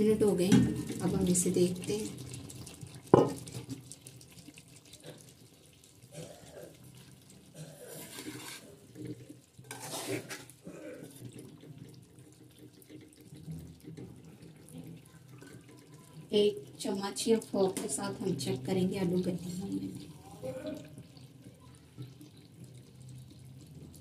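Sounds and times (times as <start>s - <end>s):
metal spoon scraping a metal pan: 7.9s - 8.8s, 9.6s - 10.6s.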